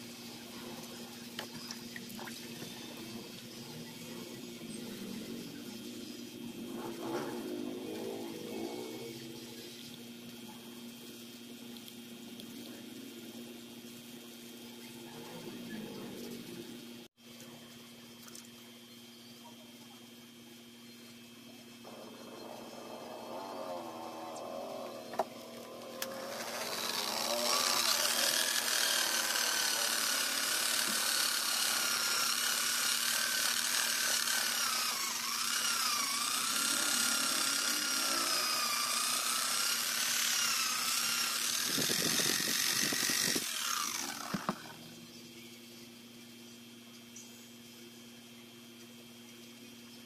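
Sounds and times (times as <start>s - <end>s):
electric polisher motor whine: 21.9s - 44.9s.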